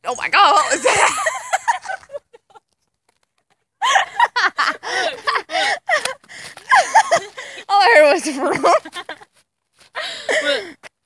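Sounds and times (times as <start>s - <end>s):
girls laughing: 0.4s - 2.7s, 3.8s - 9.3s.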